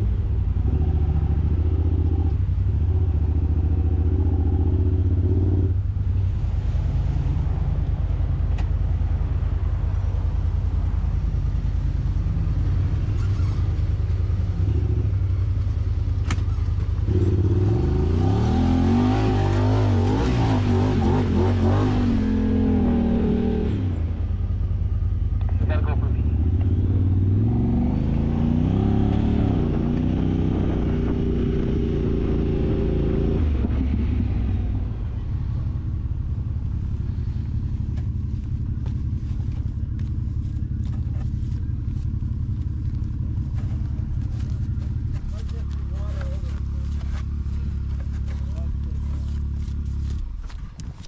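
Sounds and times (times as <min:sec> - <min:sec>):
utv engine revving: 0:00.0 - 0:05.9, 0:16.1 - 0:51.0.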